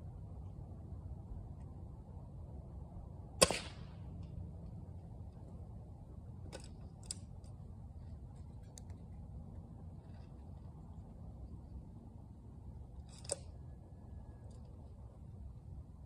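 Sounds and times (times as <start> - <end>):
air rifle shot: 3.4 - 4.0.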